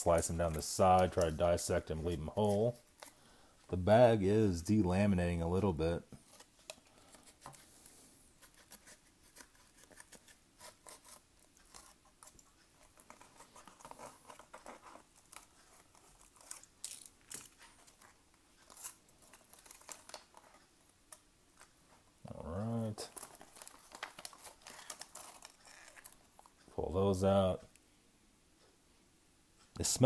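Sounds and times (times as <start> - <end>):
foil pouch crinkling: 8.4 - 20.6, 23.0 - 26.6.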